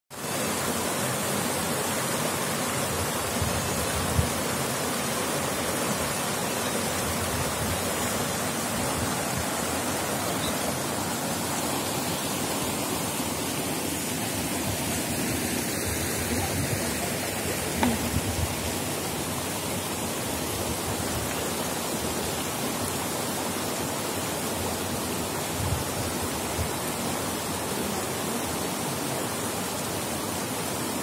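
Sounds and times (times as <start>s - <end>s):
river rushing over boulders: 0.1s - 31.0s.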